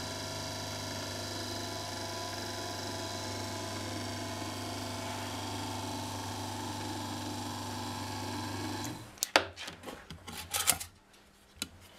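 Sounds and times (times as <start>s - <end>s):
case tumbler motor humming: 0.0s - 9.0s.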